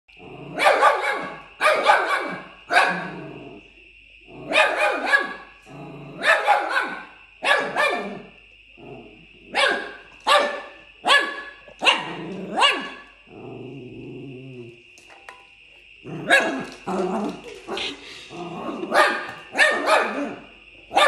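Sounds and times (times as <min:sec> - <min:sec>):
puppy barking: 0:00.6 - 0:03.1, 0:04.5 - 0:05.5, 0:06.2 - 0:08.3, 0:09.5 - 0:13.0, 0:16.2 - 0:16.7, 0:18.8 - 0:21.0.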